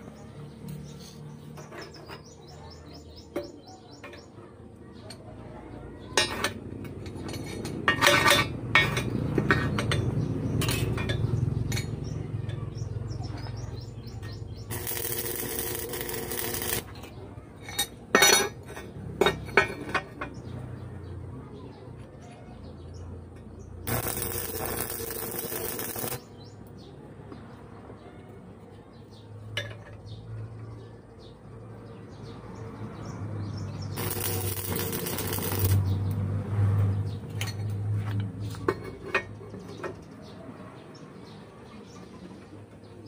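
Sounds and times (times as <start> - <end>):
steel pieces clinking on beam: 14.7 - 16.9, 23.9 - 26.2, 34.0 - 35.9.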